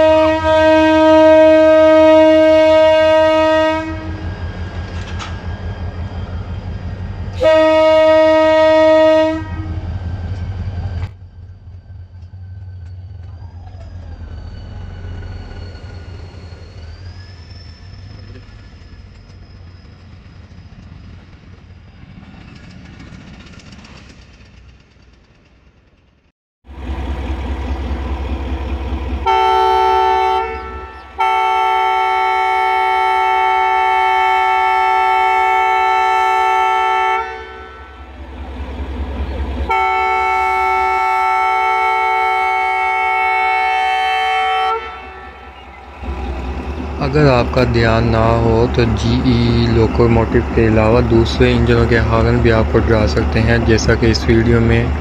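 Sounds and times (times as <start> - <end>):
locomotive horn blasts: 0.0 - 4.3, 7.4 - 9.9, 29.2 - 38.1, 39.6 - 46.3
loud multi-note train horn: 0.0 - 4.3, 7.3 - 9.9, 29.2 - 38.1, 39.6 - 46.3
train coaches rolling past: 0.0 - 55.0
diesel engine throbbing: 22.3 - 33.4, 35.4 - 55.0.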